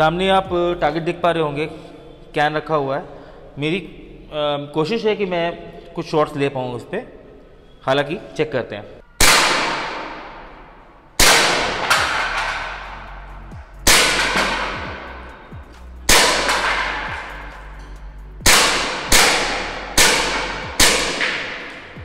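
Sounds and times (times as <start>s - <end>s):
air pistol shots echoing: 9.2s - 10.6s, 11.2s - 12.9s, 13.9s - 15.0s, 16.1s - 17.6s, 18.4s - 22.0s.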